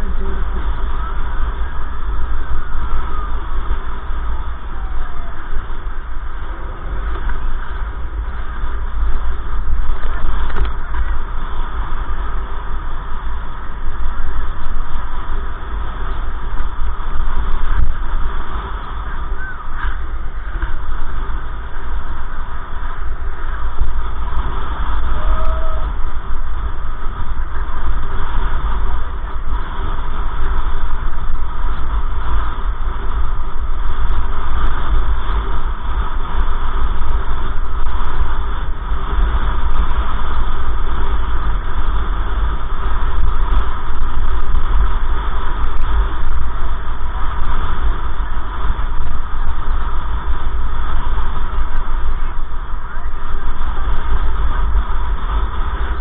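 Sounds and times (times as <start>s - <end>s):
car cabin road and engine rumble: 0.0s - 56.0s.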